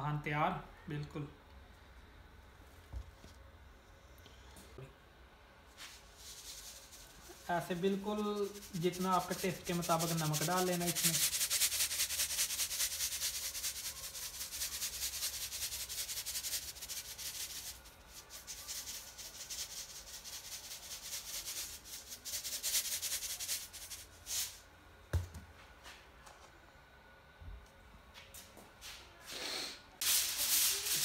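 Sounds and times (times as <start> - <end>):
salt shaker rattling: 5.8 - 24.6, 30.0 - 31.0.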